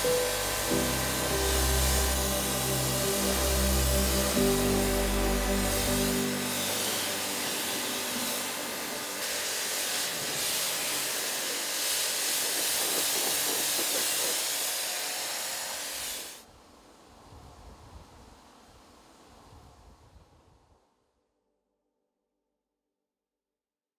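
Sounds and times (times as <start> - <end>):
pressure washer spray hissing: 0.0 - 16.4.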